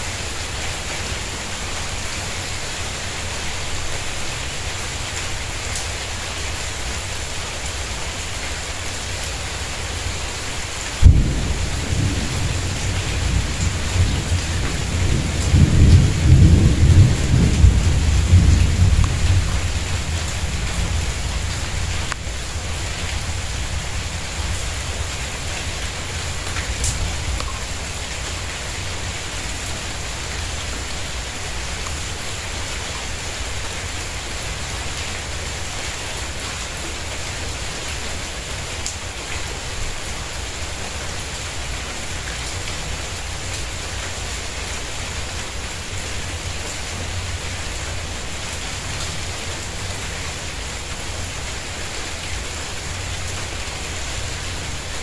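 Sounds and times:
rain on tiles: 0:00.0 - 0:55.0
low rumble of thunder: 0:11.0 - 0:28.2.

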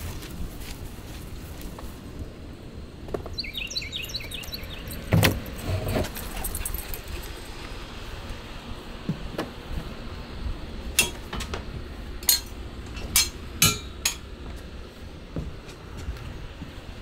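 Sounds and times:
sharp clinks and knocks: 0:12.2 - 0:14.3.

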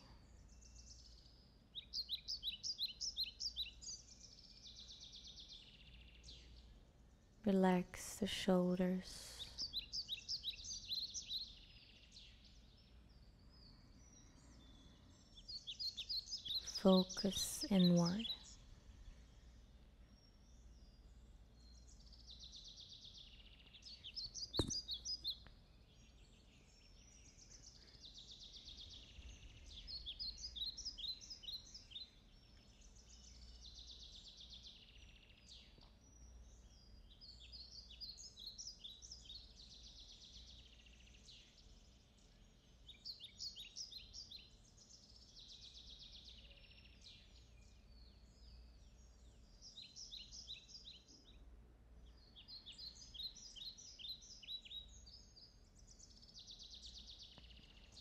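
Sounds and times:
faint bird song: 0:00.0 - 0:58.0
sharp click: 0:24.6 - 0:24.9.

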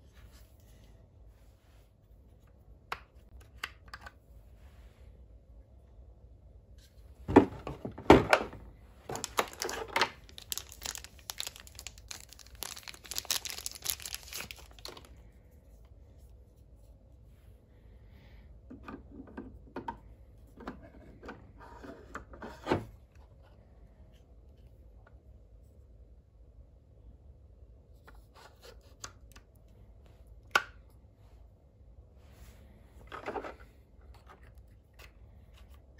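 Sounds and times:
crinkling: 0:07.3 - 0:15.4.

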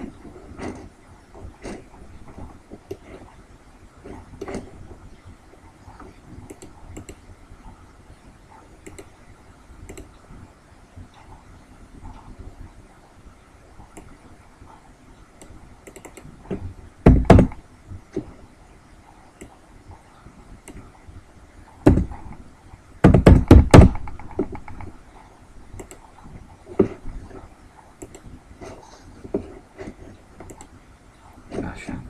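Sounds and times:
computer keyboard keys tapping: 0:06.4 - 0:07.2, 0:08.8 - 0:09.2, 0:09.8 - 0:10.2, 0:15.4 - 0:16.3, 0:17.1 - 0:17.6, 0:21.9 - 0:22.4, 0:23.0 - 0:25.0, 0:25.7 - 0:27.0, 0:28.0 - 0:28.3
mouse clicks: 0:06.4 - 0:07.2, 0:08.8 - 0:09.2, 0:09.8 - 0:10.2, 0:15.4 - 0:16.3, 0:25.7 - 0:26.1, 0:28.0 - 0:28.3, 0:30.4 - 0:30.7.

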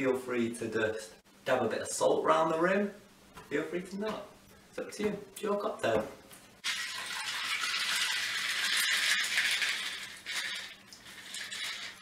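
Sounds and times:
liquid pouring over ice: 0:06.6 - 0:12.0
ice clinking against glass: 0:06.7 - 0:12.0.

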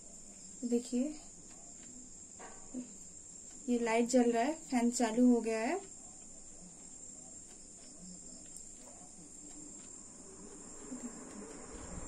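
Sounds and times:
ceiling fan running: 0:00.0 - 0:12.0
wind rumble on microphone: 0:11.5 - 0:12.0.

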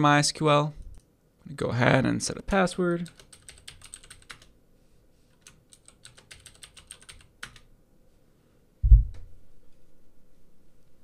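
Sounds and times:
keyboard typing: 0:03.0 - 0:04.5, 0:05.3 - 0:07.7
low thump: 0:08.8 - 0:09.4.

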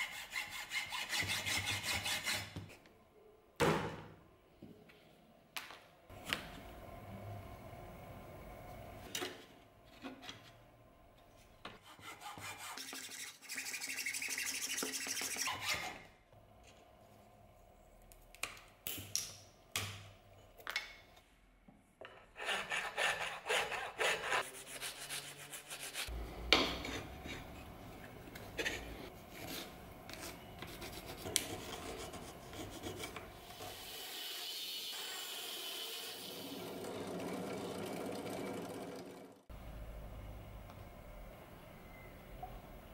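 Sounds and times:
file rasping wood: 0:00.0 - 0:02.6, 0:11.8 - 0:15.8, 0:22.4 - 0:26.1.

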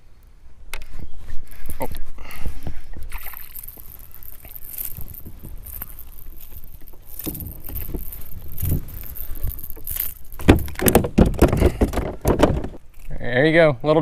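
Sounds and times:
fishing reel clicks and rustles: 0:03.1 - 0:11.0.

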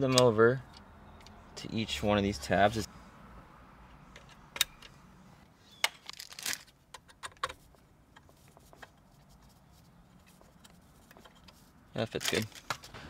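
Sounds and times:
plastic rustling: 0:06.0 - 0:06.7.

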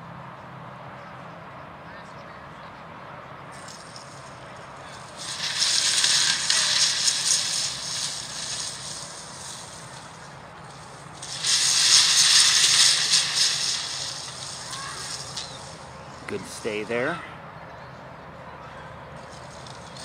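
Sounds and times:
loud hissing bursts: 0:04.8 - 0:17.2.

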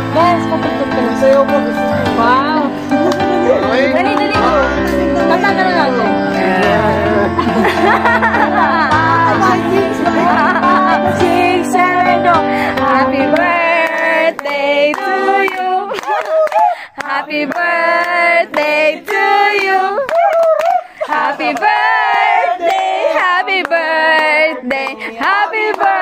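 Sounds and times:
song with woman singing: 0:08.3 - 0:22.2.

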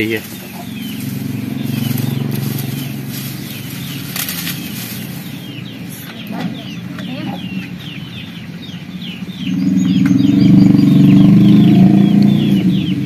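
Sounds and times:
crackling: 0:00.0 - 0:05.4
steady low hum: 0:00.0 - 0:11.1
birds chirping: 0:00.0 - 0:13.0
twigs rustling and snapping: 0:00.2 - 0:05.4.

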